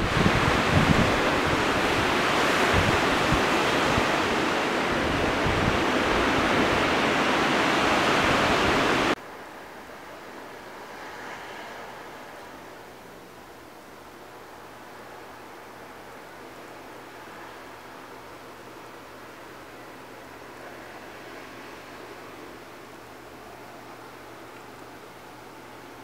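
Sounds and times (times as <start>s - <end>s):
surf breaking on beach: 0.0s - 9.2s
wind rumbling on microphone: 0.0s - 9.2s
faint steady hiss: 0.0s - 26.0s.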